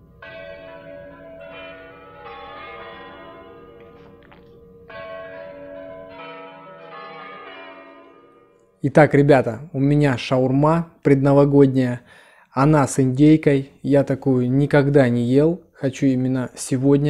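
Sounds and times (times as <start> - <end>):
bells chiming: 0.0 - 8.9.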